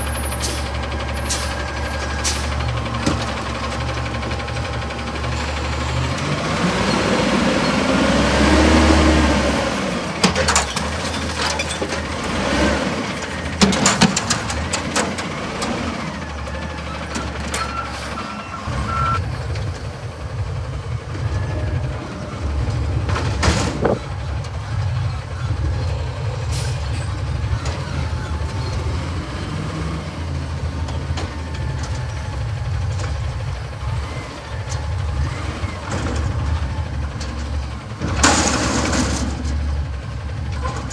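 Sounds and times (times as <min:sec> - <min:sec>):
garbage truck engine revving: 0:00.0 - 0:40.9
metal dumpster clanks and bangs: 0:10.1 - 0:19.1, 0:22.5 - 0:29.2, 0:30.7 - 0:40.9.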